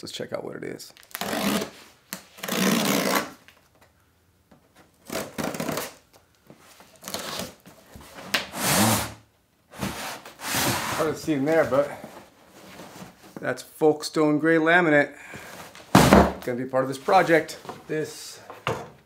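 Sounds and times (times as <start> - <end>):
blade slitting packing tape: 1.0 - 3.4, 5.0 - 6.0.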